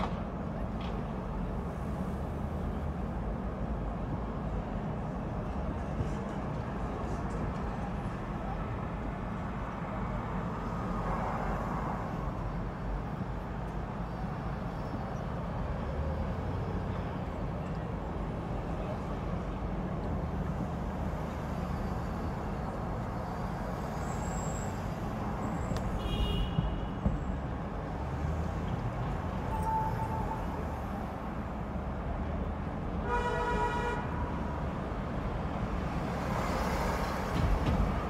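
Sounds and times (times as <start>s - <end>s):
traffic rumble of engines and tyres: 0.0s - 38.0s
brief high-pitched squeal: 29.5s - 30.8s.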